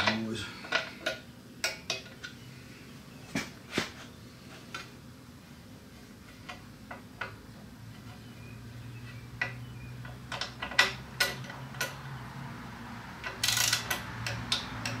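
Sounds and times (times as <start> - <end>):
torque wrench clicking: 13.2 - 15.0.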